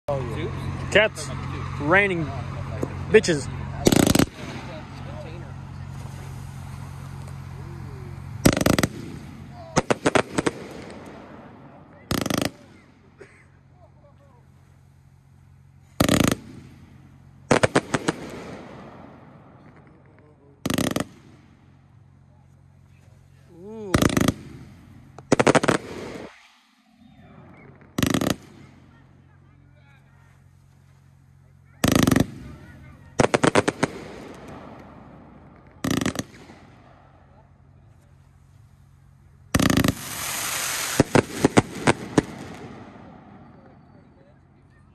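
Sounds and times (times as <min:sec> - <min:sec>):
crackle of bursting stars: 0:05.6 - 0:12.9, 0:23.3 - 0:29.0, 0:39.5 - 0:44.1
firework cake bangs: 0:08.2 - 0:13.0, 0:15.8 - 0:21.5, 0:23.8 - 0:26.7, 0:27.6 - 0:28.9, 0:31.8 - 0:36.9, 0:39.5 - 0:43.8.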